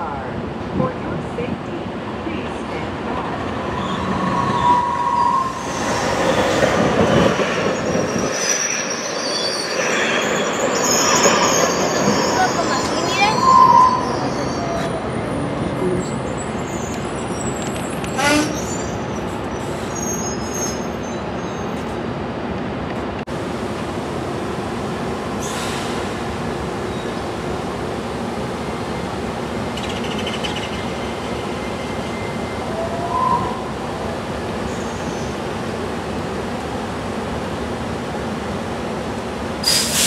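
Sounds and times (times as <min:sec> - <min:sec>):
light rail train rumble and hum: 0:00.0 - 0:40.0
sharp train squeal: 0:03.6 - 0:06.8, 0:07.6 - 0:21.8, 0:30.1 - 0:33.7, 0:39.6 - 0:40.0.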